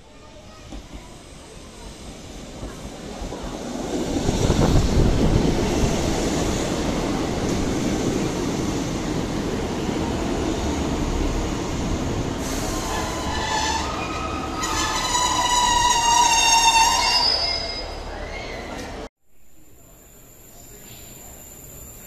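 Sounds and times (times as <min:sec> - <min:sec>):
train rumble: 0:00.2 - 0:17.3
high-pitched brake squeal: 0:12.4 - 0:18.9.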